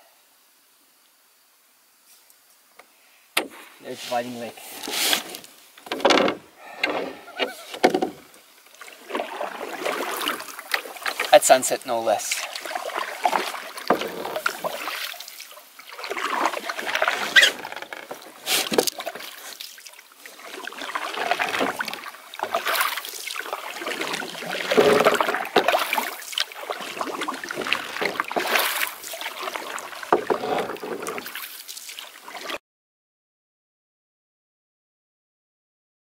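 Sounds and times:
paddle strokes through water: 3.4 - 32.6.

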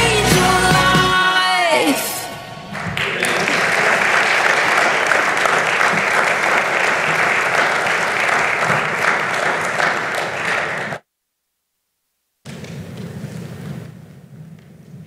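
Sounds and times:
congregation applauding: 1.8 - 11.0.

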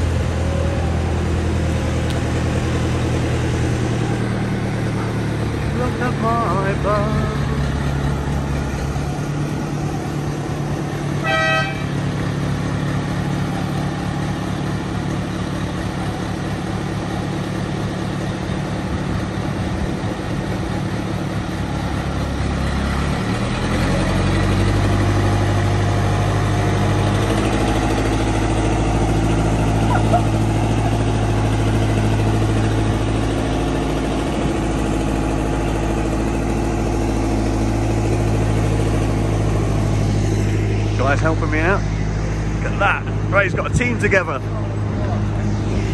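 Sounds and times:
lift engine running: 0.0 - 45.9
short horn toot: 11.2 - 11.9.

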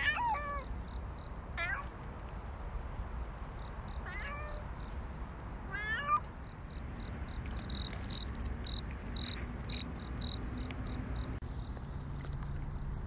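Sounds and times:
insect chirping: 0.6 - 1.5, 3.4 - 5.0, 6.3 - 12.3
cat meowing: 5.7 - 6.3.

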